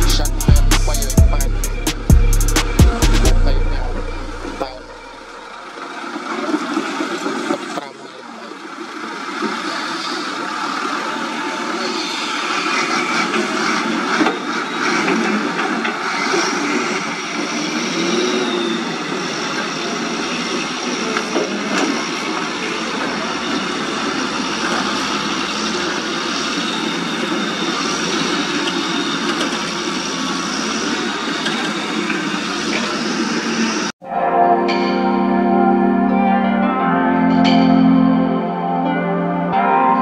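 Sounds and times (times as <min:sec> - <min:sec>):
diesel truck engine running: 0:00.0 - 0:16.8.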